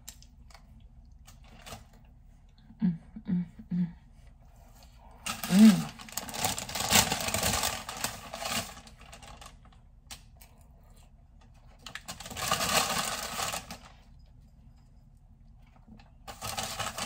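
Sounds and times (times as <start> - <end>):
paper rustling and crinkling: 5.1 - 9.8, 11.6 - 14.0, 16.2 - 17.0.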